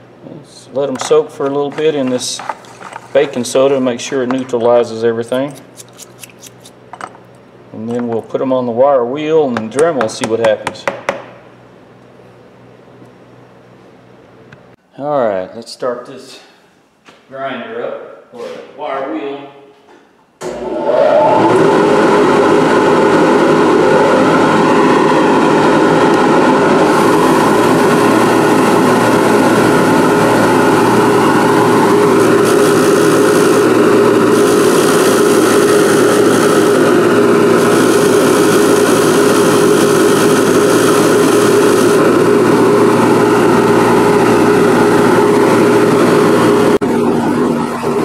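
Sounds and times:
wire brush scratching metal: 5.5 - 6.8
bench grinder running: 20.5 - 48.0.

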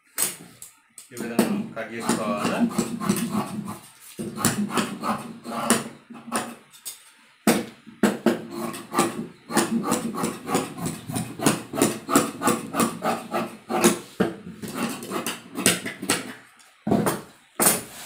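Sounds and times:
shears cutting fabric: 1.2 - 6.6, 8.3 - 16.2.

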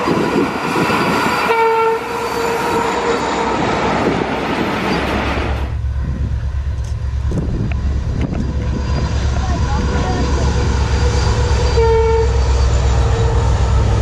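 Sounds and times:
freight train wagons rumbling past: 0.0 - 14.0
locomotive horn: 1.4 - 3.6, 7.7 - 14.0
steady low rumble: 2.9 - 14.0.

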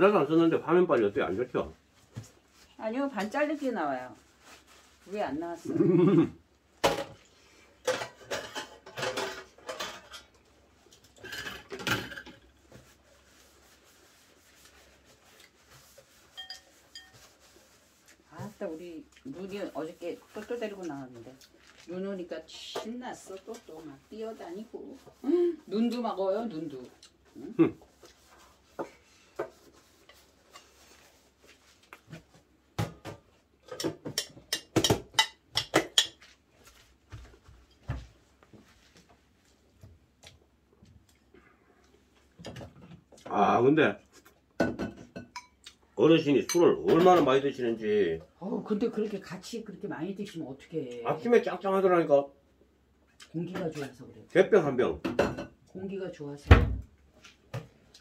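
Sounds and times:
dishes and cutlery clinking: 7.8 - 12.6, 16.2 - 17.4, 32.8 - 36.4, 44.6 - 45.7, 46.4 - 47.5
utensils clinking against bowls: 16.3 - 17.3.

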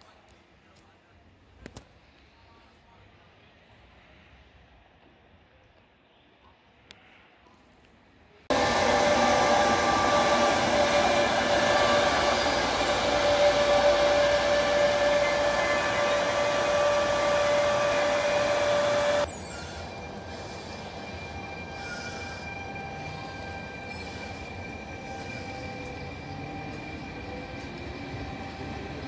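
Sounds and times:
electric locomotive humming: 8.5 - 29.0.

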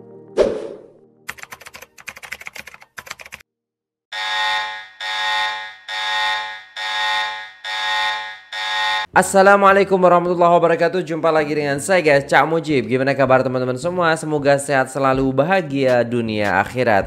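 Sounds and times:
rapid typing-like clicks: 1.3 - 3.4
electronic alarm buzzer: 4.1 - 9.1.

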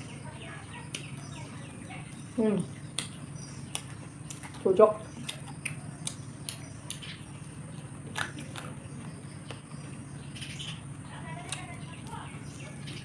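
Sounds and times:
steady low hum: 0.0 - 13.0
person chewing food: 2.9 - 10.0.

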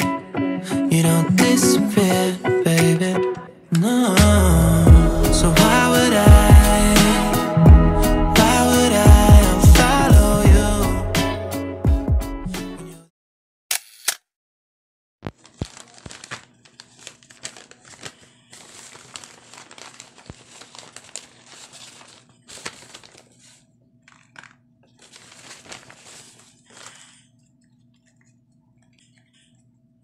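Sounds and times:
paper bag crinkling: 15.3 - 29.5.

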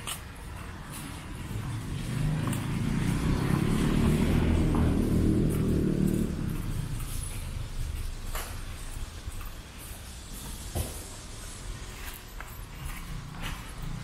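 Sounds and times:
car driving past: 0.9 - 8.8.

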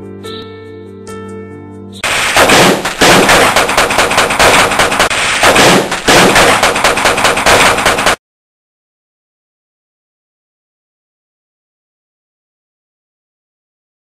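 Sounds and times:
soft music: 0.0 - 2.0
machine-gun fire: 2.0 - 8.2.

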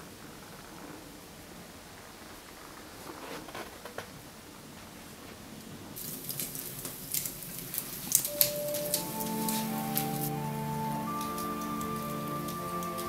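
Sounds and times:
rain pattering: 5.4 - 13.0
soft sustained music note: 8.3 - 13.0.

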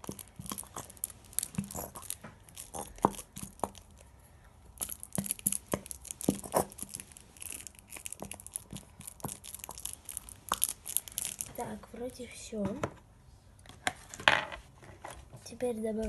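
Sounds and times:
plastic glue bottle crackling: 0.0 - 4.1, 4.7 - 11.7.

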